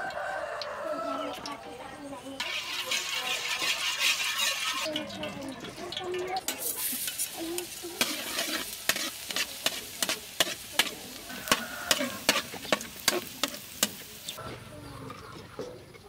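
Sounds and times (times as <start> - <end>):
food sizzling in oil: 0.0 - 14.4
metal spatula scraping a wok: 2.4 - 5.3, 6.4 - 14.4.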